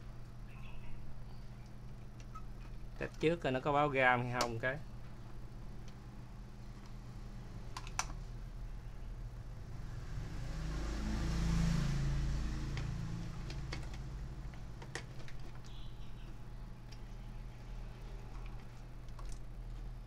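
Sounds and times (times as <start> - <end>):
steady low hum: 0.0 - 20.0
passing engine: 9.7 - 14.4.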